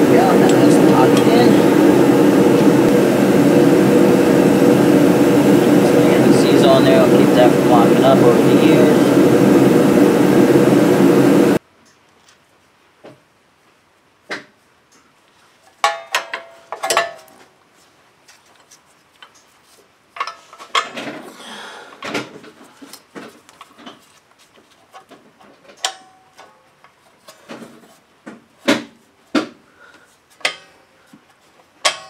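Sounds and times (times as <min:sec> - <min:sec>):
loud steady machine noise: 0:00.0 - 0:11.6
rustling: 0:22.4 - 0:25.7
metal hardware clicks and clinks: 0:30.4 - 0:30.8.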